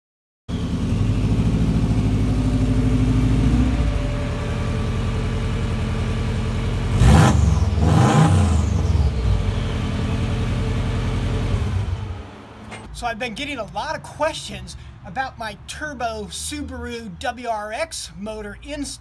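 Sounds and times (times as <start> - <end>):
engine idling and revving: 0.5 - 14.3.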